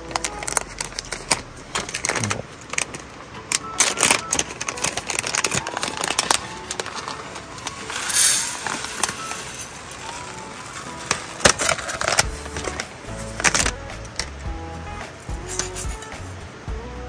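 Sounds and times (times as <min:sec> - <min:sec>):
plastic bag rustling: 0:00.0 - 0:13.8
soft background music: 0:00.0 - 0:17.0
rice pouring into metal pot: 0:05.6 - 0:12.0.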